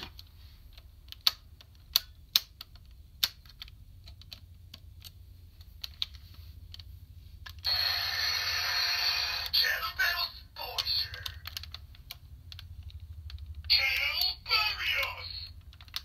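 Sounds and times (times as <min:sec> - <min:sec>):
hard plastic toy parts clicking: 0:00.0 - 0:07.6, 0:10.7 - 0:16.0
toy electronic sound effect: 0:07.6 - 0:11.4, 0:13.7 - 0:15.5.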